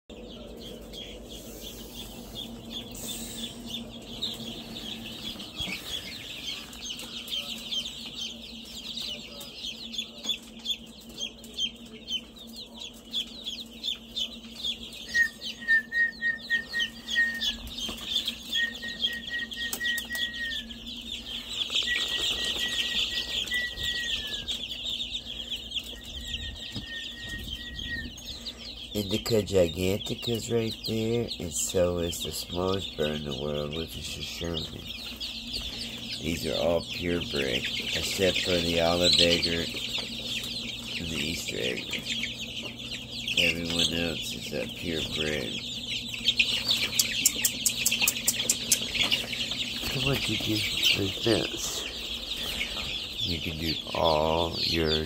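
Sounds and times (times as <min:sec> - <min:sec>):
chicks peeping: 0:00.1 - 0:55.0
steady low hum: 0:00.1 - 0:55.0
lower repeated bird call: 0:14.9 - 0:25.1.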